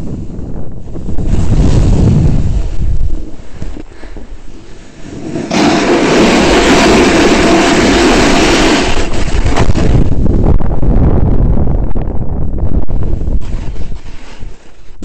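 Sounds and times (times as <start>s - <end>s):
wind rumbling on microphone: 0.0s - 15.0s
skis sliding on snow: 1.2s - 10.0s, 13.4s - 15.0s.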